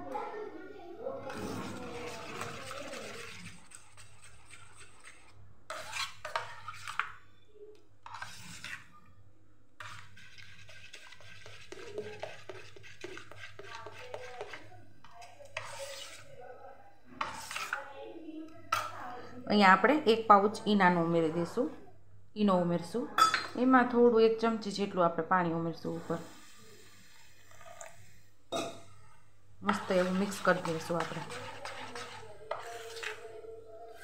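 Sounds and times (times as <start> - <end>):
spoon stirring batter: 1.2 - 9.1, 9.8 - 19.2, 25.8 - 28.8, 29.6 - 34.0.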